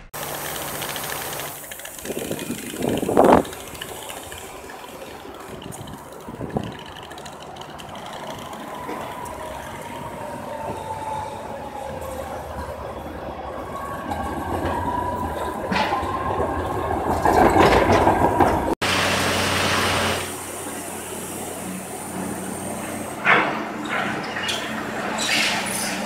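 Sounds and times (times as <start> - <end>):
tram whine on rails: 0.0 - 26.0
steady hiss: 0.1 - 6.5.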